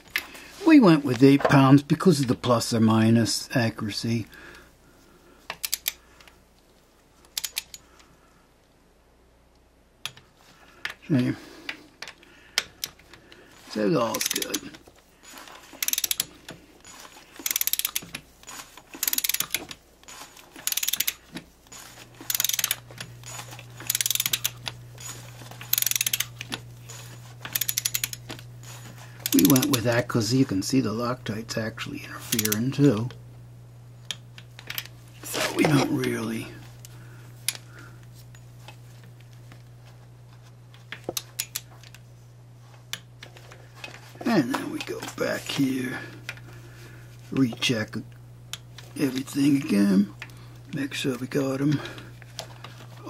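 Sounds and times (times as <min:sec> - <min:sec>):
steady low hum: 0:00.0 - 0:53.0
torque wrench ratchet clicking: 0:05.5 - 0:06.0, 0:07.3 - 0:07.8, 0:14.1 - 0:14.6, 0:15.8 - 0:16.3, 0:17.4 - 0:19.8, 0:20.6 - 0:21.2, 0:22.2 - 0:29.8, 0:32.3 - 0:32.8, 0:41.2 - 0:41.7.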